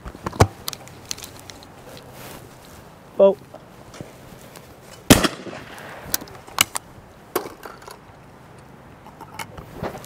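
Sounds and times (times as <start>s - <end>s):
gunshot echo: 5.1s - 6.2s.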